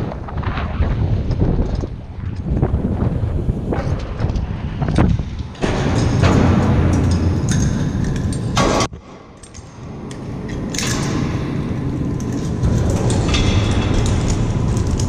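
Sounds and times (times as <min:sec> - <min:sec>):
metal hardware clanking on ladder: 0:05.6 - 0:15.0.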